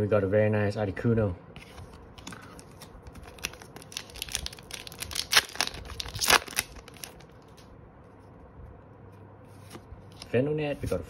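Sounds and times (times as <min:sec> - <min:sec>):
foil wrapper crinkling: 0:02.2 - 0:07.6.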